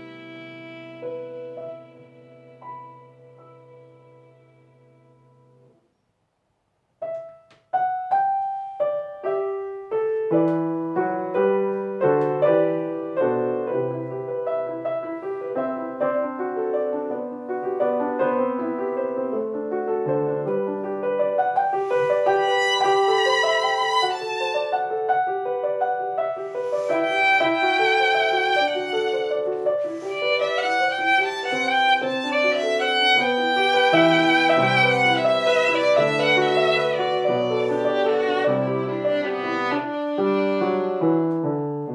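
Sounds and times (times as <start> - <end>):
violin melody: 0.0 - 5.7, 20.0 - 41.9
piano notes: 0.0 - 5.8, 7.0 - 41.9.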